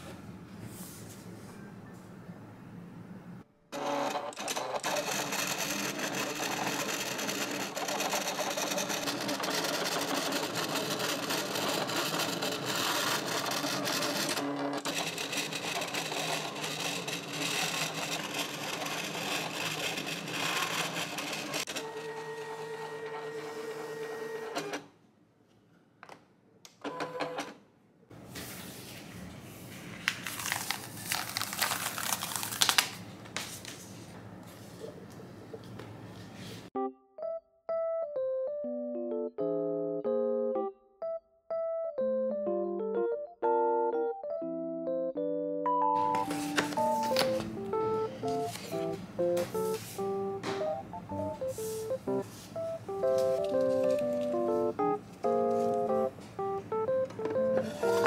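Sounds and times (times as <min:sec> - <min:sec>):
cutting machine motor whir: 0:03.8 - 0:24.8
plastic sheet rustling and crinkling: 0:29.7 - 0:34.0.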